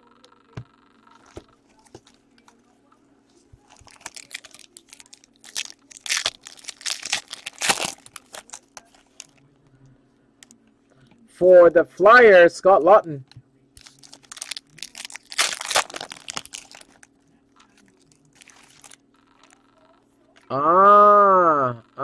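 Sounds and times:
foil card pack crinkling and tearing: 3.7s - 9.4s, 13.8s - 17.1s, 17.7s - 19.6s.

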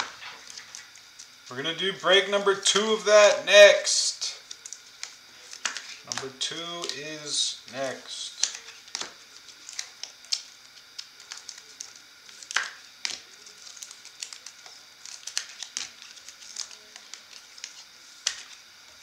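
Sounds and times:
foil wrappers crinkling: 0.0s - 19.0s
cards clicking and snapping: 4.4s - 18.7s.

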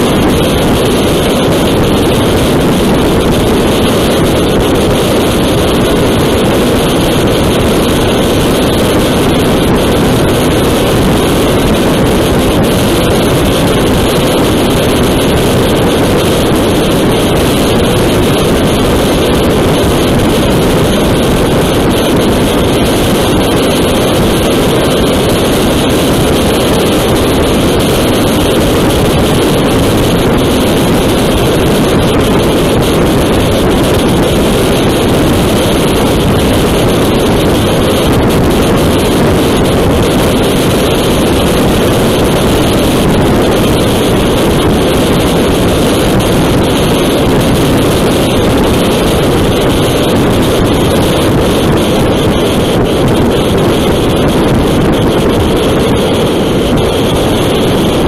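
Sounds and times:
wind rushing on microphone: 0.0s - 58.0s.

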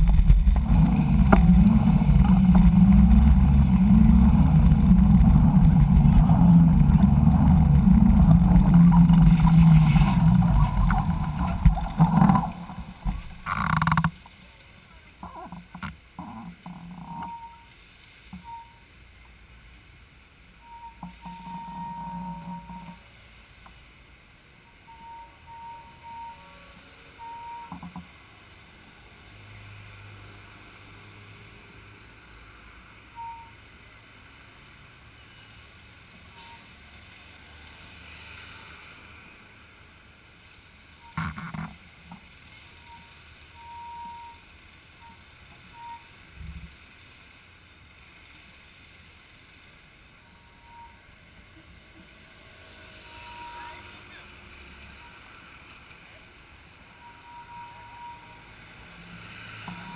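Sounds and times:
outdoor background noise: 0.0s - 59.9s
short faint beeps: 17.0s - 17.7s, 18.4s - 18.9s, 20.6s - 23.1s, 24.7s - 27.9s, 33.2s - 33.6s, 36.4s - 36.7s, 42.8s - 46.2s, 50.2s - 51.1s, 56.9s - 58.6s, 59.7s - 59.9s.

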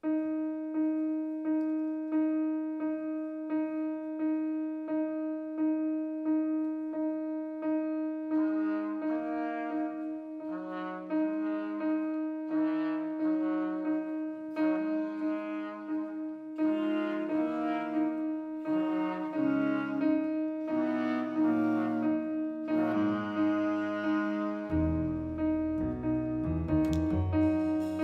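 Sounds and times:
clarinet melody: 6.8s - 28.0s
trumpet melody: 7.6s - 28.0s.

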